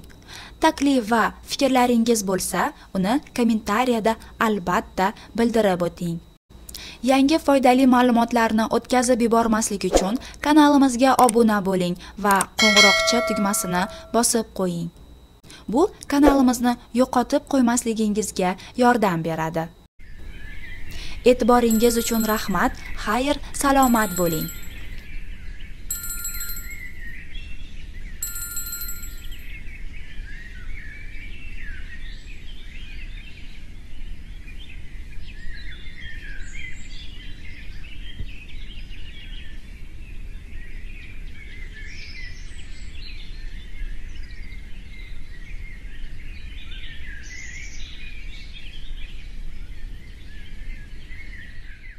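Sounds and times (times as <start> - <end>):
bell-like chime: 12.6 - 14.2, 21.6 - 22.8, 23.8 - 24.9, 25.9 - 26.9, 28.2 - 29.4.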